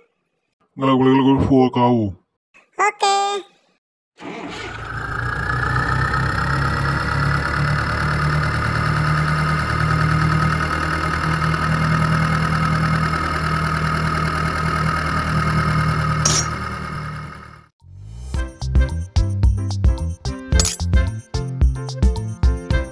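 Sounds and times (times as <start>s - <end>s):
tractor engine running: 4.2s - 17.7s.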